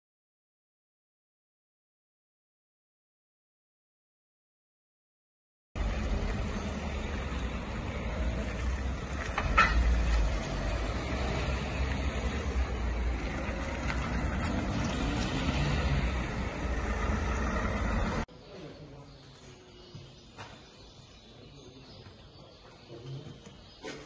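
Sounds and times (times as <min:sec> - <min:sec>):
car engines and tyres: 0:05.8 - 0:24.0.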